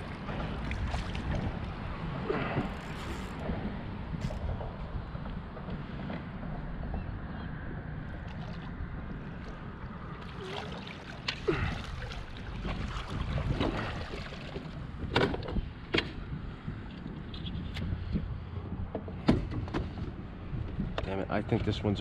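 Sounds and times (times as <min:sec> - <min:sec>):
water splashing: 0:00.0 - 0:01.8, 0:08.2 - 0:14.9.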